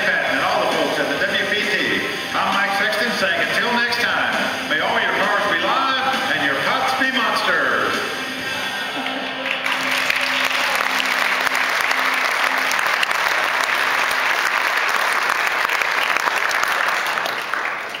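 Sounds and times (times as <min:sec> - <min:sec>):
audience applauding: 0:08.9 - 0:18.0.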